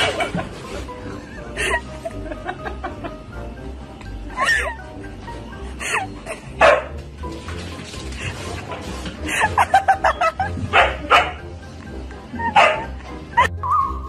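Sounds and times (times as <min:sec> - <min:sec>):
background music: 0:00.0 - 0:14.0
dog barking: 0:06.6 - 0:07.0, 0:10.7 - 0:11.4, 0:12.5 - 0:13.0.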